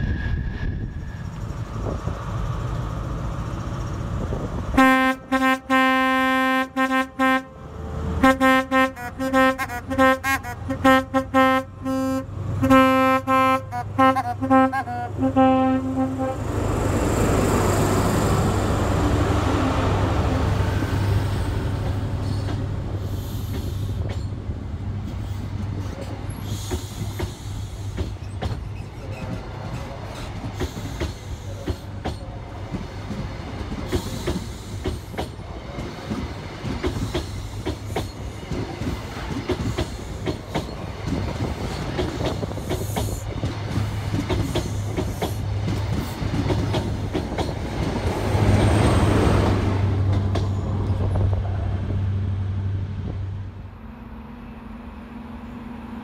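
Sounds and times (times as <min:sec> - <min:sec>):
train two-tone horn: 0:04.8 - 0:16.5
train wheels clickety-clack: 0:21.5 - 0:51.7.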